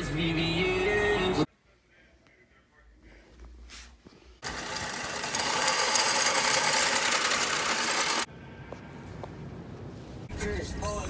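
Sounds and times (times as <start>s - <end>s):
drain-cleaning machine whirring: 4.4s - 8.3s.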